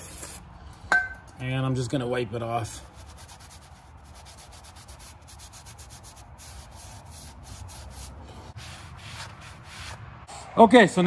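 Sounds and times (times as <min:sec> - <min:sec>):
rag wiping brake shoe: 0:02.4 - 0:10.0.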